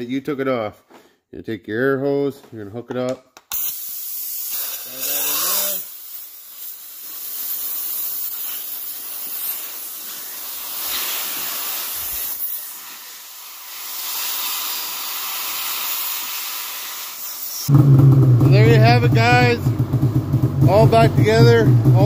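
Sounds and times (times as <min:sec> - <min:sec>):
compressed air hissing: 0:03.5 - 0:17.7.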